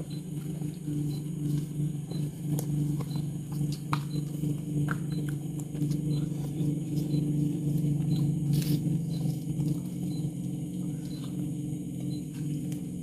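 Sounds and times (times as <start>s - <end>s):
steady low hum: 0.0s - 13.0s
faint high chirps: 10.0s - 11.4s.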